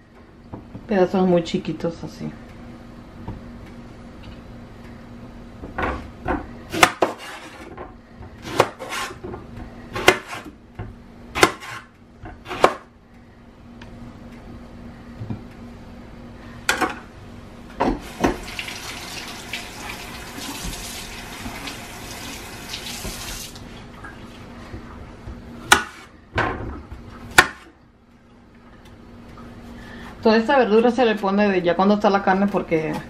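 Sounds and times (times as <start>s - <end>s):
faucet running into sink: 18.0s - 23.6s.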